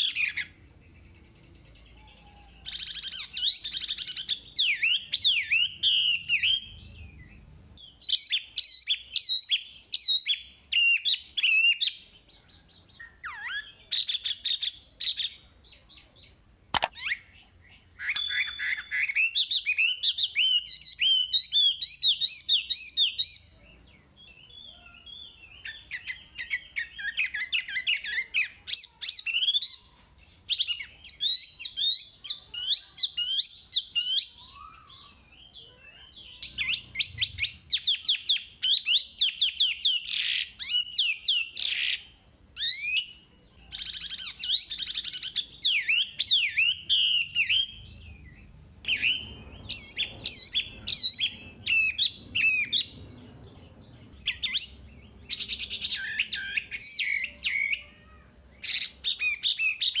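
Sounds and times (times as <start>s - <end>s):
bird singing whistles and trills: 2.1s - 12.0s, 18.0s - 23.5s, 30.5s - 42.0s, 42.6s - 53.1s, 54.2s - 57.8s, 58.6s - 60.0s.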